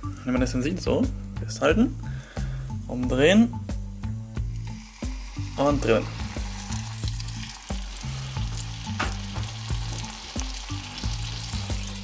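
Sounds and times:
background music bass line: 0.0 - 12.0
meat sizzling in a frying pan: 3.6 - 12.0
fat crackling pops: 8.8 - 9.4.

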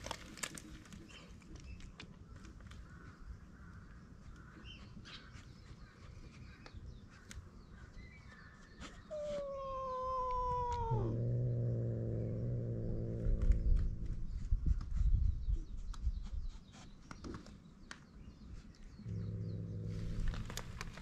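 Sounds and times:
cat yowling and growling: 9.1 - 14.2.

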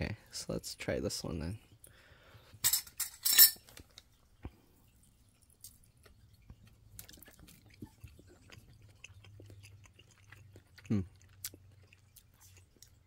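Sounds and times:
chewing and mouth clicks: 5.0 - 13.0.

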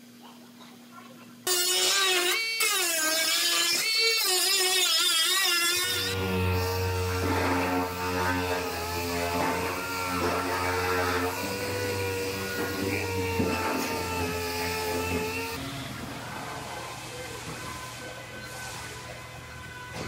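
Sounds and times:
pneumatic cut-off wheel whining: 1.5 - 15.6
air sander humming: 1.5 - 16.0.

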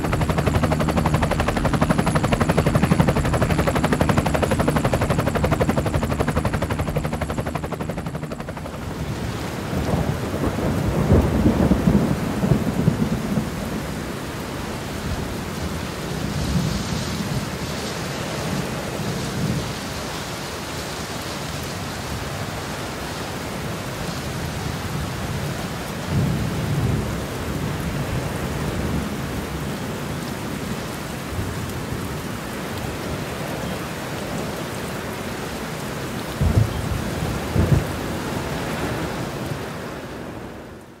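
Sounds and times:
low thunder rumbles: 0.0 - 14.0, 36.3 - 38.2
rain-like hiss: 8.6 - 41.0.

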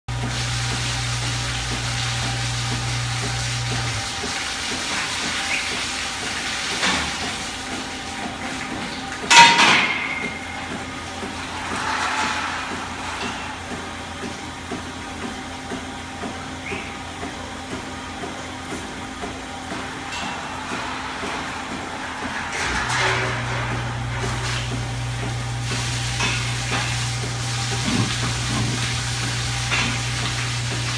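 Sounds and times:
loud metal clang: 9.3 - 10.5.

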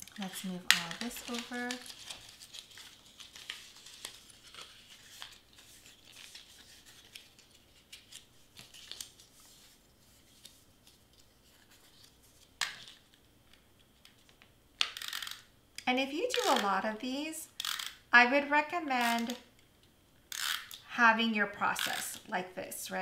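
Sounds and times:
cardstock rustling and clicking: 0.0 - 13.2.

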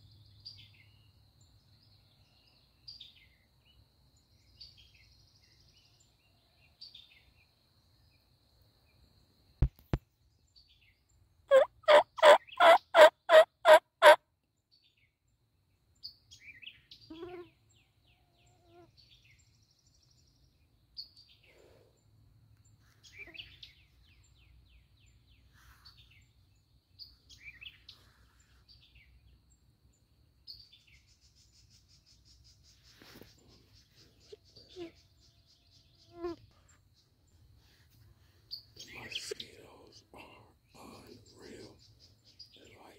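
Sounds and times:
songbirds chirping faintly: 0.0 - 42.9
wild turkey yelping: 11.5 - 14.2.

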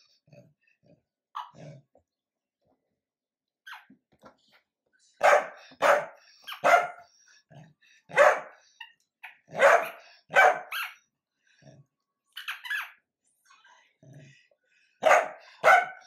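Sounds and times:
dog barking: 5.2 - 7.0, 8.1 - 8.6, 9.5 - 11.0, 15.0 - 16.0.

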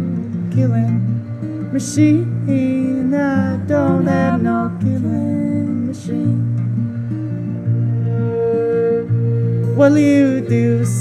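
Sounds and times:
man singing: 0.0 - 6.7, 9.8 - 11.0
acoustic guitar strumming: 0.0 - 11.0
fiddle bowed: 0.0 - 11.0.

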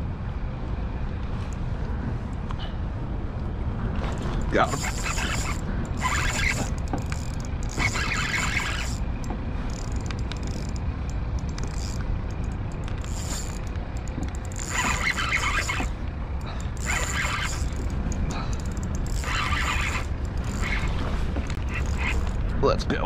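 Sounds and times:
steady low rumble: 0.0 - 23.0
spinning reel being cranked: 4.6 - 9.1, 9.7 - 10.8, 11.4 - 22.4.

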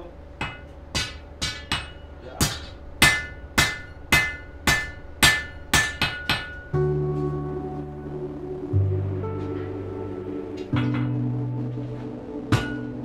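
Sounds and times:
hammer striking metal on anvil: 0.4 - 6.8, 10.6 - 11.2, 12.5 - 13.0
music: 0.4 - 13.0.

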